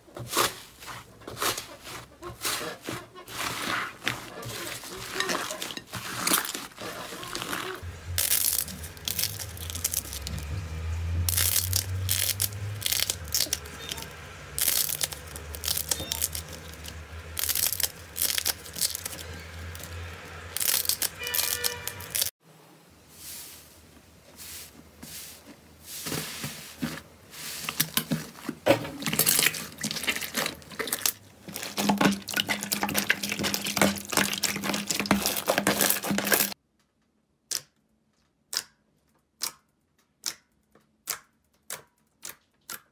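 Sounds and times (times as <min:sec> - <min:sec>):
slime crackling and popping: 0:06.0 - 0:10.5, 0:11.3 - 0:22.3, 0:29.0 - 0:36.6.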